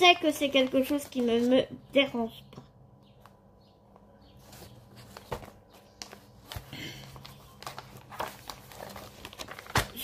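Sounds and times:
packaging rustle: 5.0 - 10.0.

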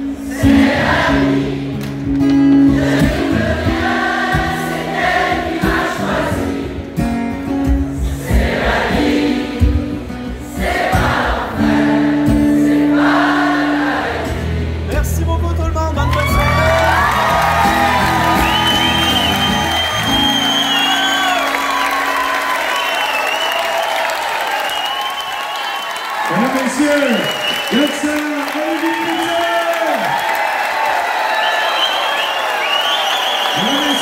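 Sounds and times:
crowd singing along: 0.0 - 15.0
acoustic guitar strumming: 0.0 - 15.7, 16.6 - 22.1.

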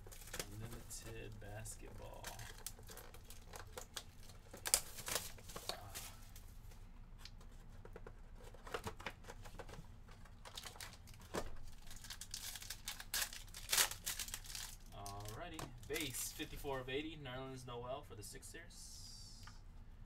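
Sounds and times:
foil pack crinkling and tearing: 0.0 - 6.4, 10.2 - 16.6.

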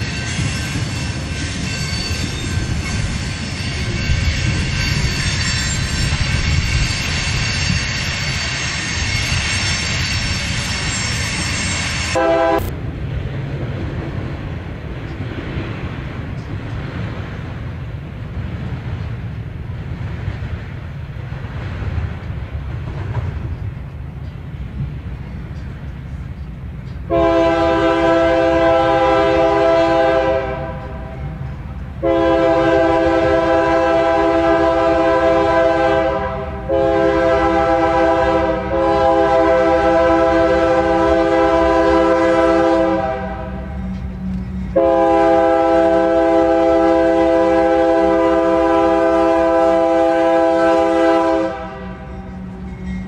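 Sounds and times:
low rumble of passing train: 0.0 - 53.0
locomotive horn blasts: 12.1 - 12.7, 27.1 - 31.4, 32.0 - 52.9.

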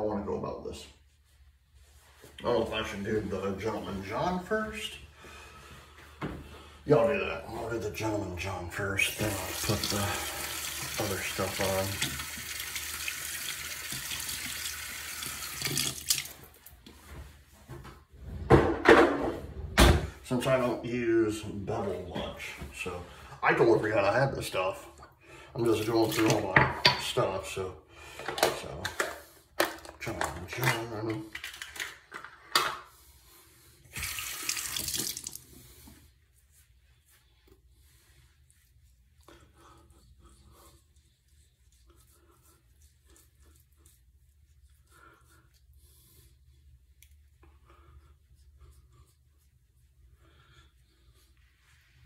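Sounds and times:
tap running into a sink: 13.5 - 16.3, 34.0 - 35.4.

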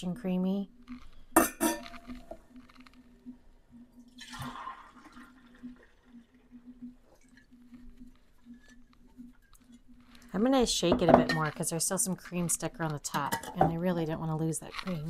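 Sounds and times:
faint steady hum: 0.0 - 15.0
milk pouring into glass jar: 4.1 - 7.5.

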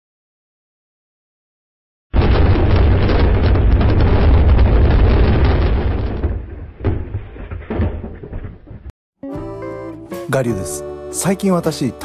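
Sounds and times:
stone cracking with deep rumble: 2.2 - 9.0
short thuds: 3.2 - 8.9.

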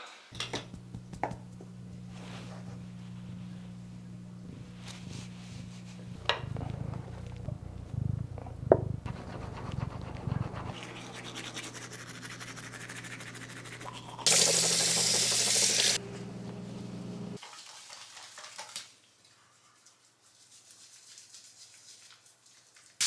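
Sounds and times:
cat purring: 0.8 - 11.4
toothbrush scrubbing teeth: 9.0 - 16.0, 19.2 - 23.0
tap water running into basin: 13.8 - 16.0.

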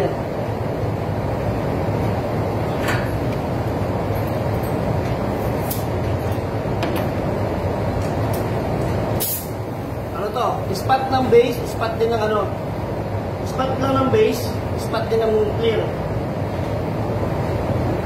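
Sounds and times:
ventilation air rushing with hum: 0.0 - 18.0
short hisses: 9.2 - 9.6.

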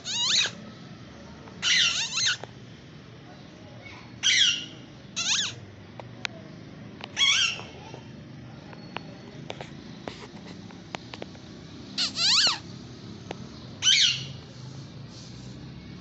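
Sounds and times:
parakeet screeching: 0.0 - 0.6, 1.6 - 2.4, 4.2 - 5.6, 7.2 - 7.8, 12.0 - 12.7, 13.8 - 14.4.

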